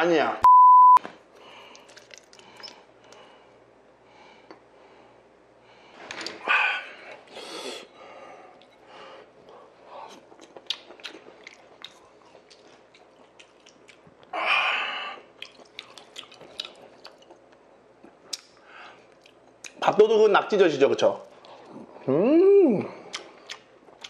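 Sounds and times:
wet chewing with mouth clicks: 1.3s - 3.3s, 9.4s - 14.3s, 15.2s - 19.8s, 22.9s - 24.0s.

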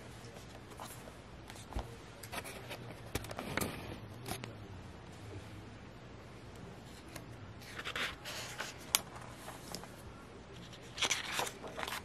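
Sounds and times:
stiff paper rustling: 7.0s - 12.0s
heavy page turning: 10.6s - 12.0s.

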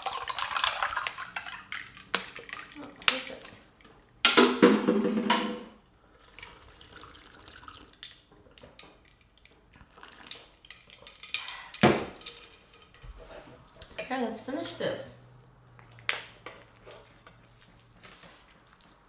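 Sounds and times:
person drinking iced water: 6.1s - 8.2s, 9.2s - 11.8s.

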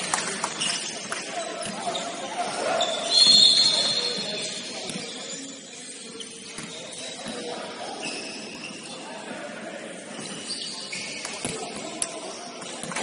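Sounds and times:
players' voices: 0.0s - 13.0s
sneakers squeaking on floor: 0.4s - 9.4s, 10.0s - 13.0s.

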